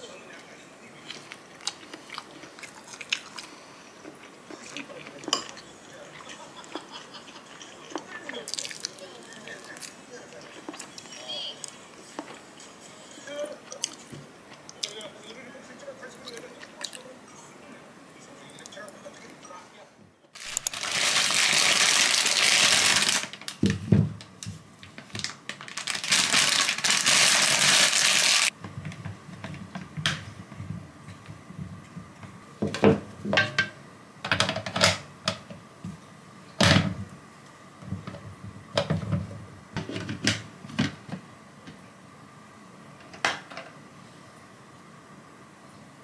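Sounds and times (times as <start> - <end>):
plastic bag crinkling: 20.4 - 23.6, 25.0 - 28.5.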